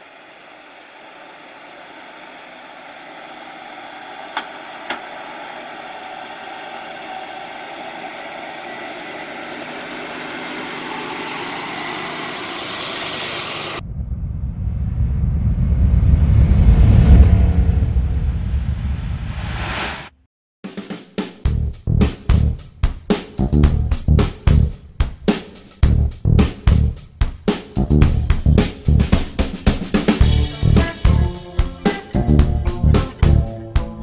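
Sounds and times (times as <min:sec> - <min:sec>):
car engine running: 0:00.0 - 0:13.8, 0:27.8 - 0:34.0
deep rumble: 0:13.8 - 0:19.9, 0:25.8 - 0:27.0, 0:27.8 - 0:29.1.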